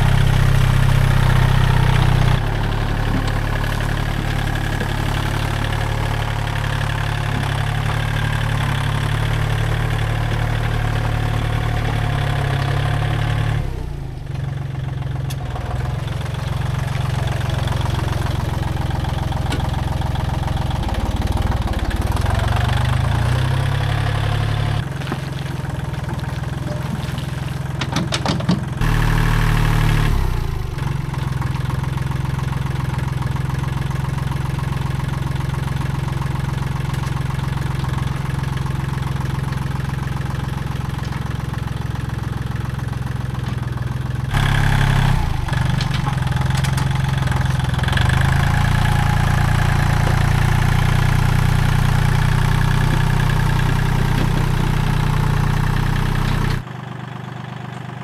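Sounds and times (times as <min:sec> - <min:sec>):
tractor engine running: 0:00.0 - 0:58.0.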